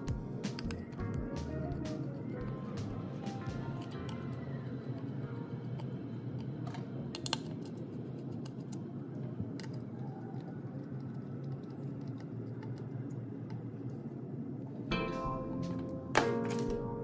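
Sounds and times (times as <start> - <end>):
low background hum: 0.0 - 17.0
screwdriver clicks and taps: 7.2 - 7.5.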